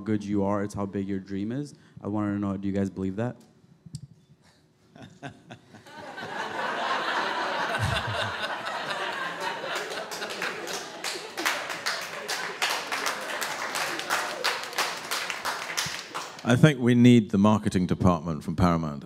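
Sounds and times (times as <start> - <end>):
audience laughing: 5.0 - 15.8
audience applause: 6.0 - 16.5.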